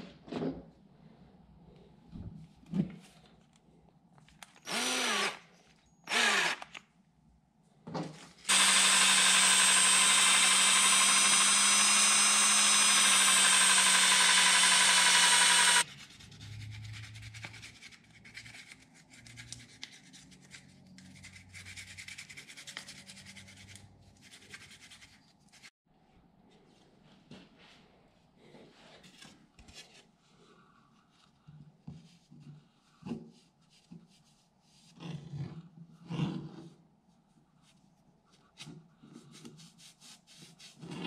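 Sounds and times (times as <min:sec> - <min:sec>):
cordless drill spinning: 0:04.6 - 0:05.5, 0:06.1 - 0:06.8, 0:08.4 - 0:15.9
sandpaper scratching: 0:15.8 - 0:25.7.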